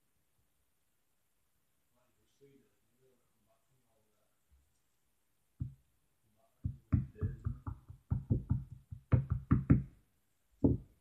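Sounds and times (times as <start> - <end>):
knocks on hard surface: 5.6 - 5.8, 6.6 - 10.0, 10.6 - 11.0.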